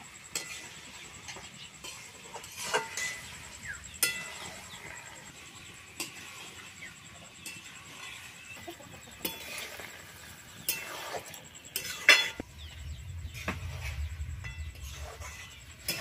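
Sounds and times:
metal spatula scraping a wok: 0.0 - 16.0
low rumble: 12.4 - 16.0.

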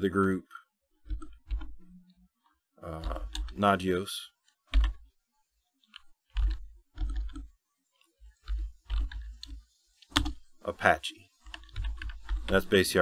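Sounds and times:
keyboard typing: 1.0 - 2.0, 2.8 - 3.7, 4.4 - 5.2, 5.8 - 10.5, 11.3 - 13.0.

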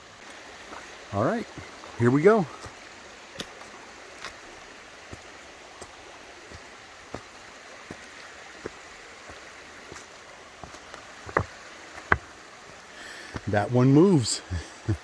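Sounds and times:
footsteps on stone steps: 0.2 - 15.0
loose step stone knocking: 10.6 - 12.4.

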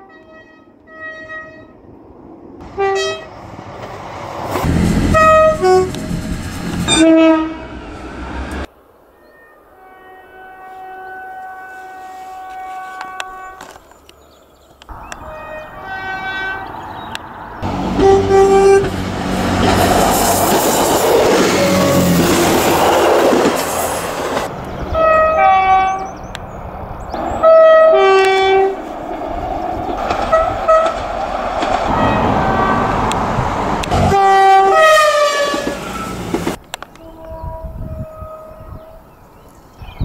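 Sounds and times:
train horn blasts: 0.0 - 1.8, 2.6 - 3.4, 4.6 - 8.0, 9.7 - 13.8, 15.0 - 16.9, 17.6 - 19.8, 24.9 - 26.1, 27.4 - 28.8, 30.2 - 31.0, 31.9 - 33.2, 33.8 - 36.2, 37.0 - 39.0
train rumbling along track: 0.0 - 8.7, 10.9 - 40.0.

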